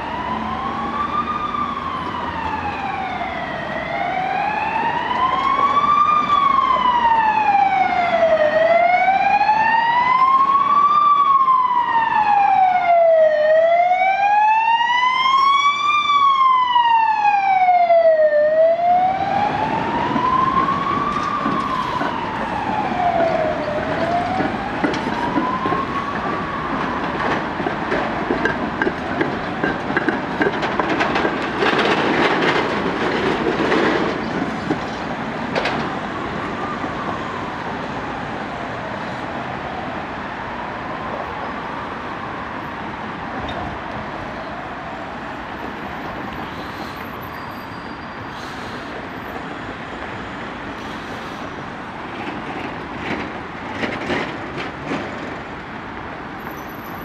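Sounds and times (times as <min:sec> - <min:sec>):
traffic noise: 0:00.0 - 0:57.0
tram wheels clattering over rails: 0:19.9 - 0:37.2, 0:48.5 - 0:57.0
tram wheel squeal: 0:46.0 - 0:50.2, 0:56.4 - 0:57.0.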